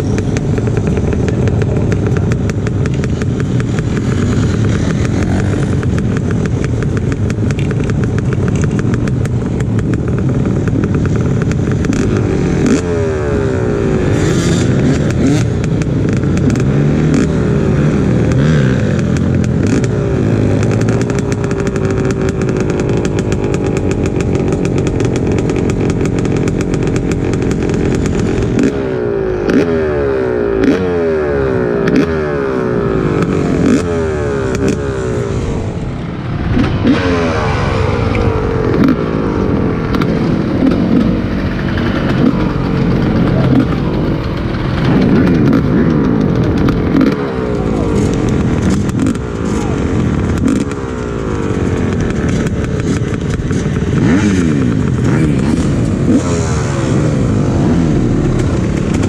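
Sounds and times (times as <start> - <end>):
scattered clicks: 0.0 - 13.9, 38.0 - 59.0
vehicle engine accelerating: 0.0 - 59.0
wind and road noise: 0.0 - 59.0.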